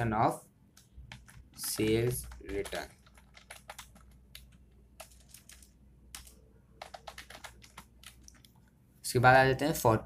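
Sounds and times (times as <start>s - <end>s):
keyboard typing: 0.7s - 8.7s.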